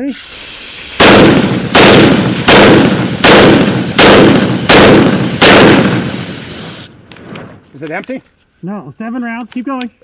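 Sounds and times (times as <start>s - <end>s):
compressed air hissing: 0.0s - 7.0s
rifle shots with echo: 1.0s - 6.3s.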